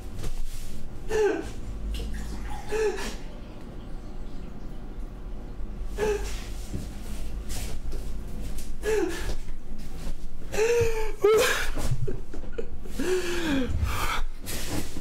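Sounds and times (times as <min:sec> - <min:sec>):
breathing: 0:13.0 - 0:14.7.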